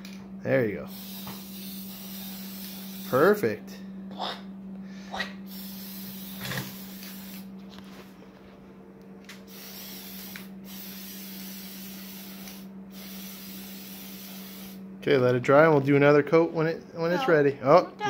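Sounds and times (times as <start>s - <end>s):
spray paint can hissing: 0.9s - 3.2s, 5.5s - 7.5s, 9.5s - 14.8s.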